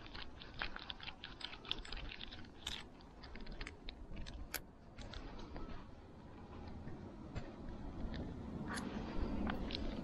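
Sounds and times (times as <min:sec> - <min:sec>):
low rumble: 0:03.1 - 0:10.0.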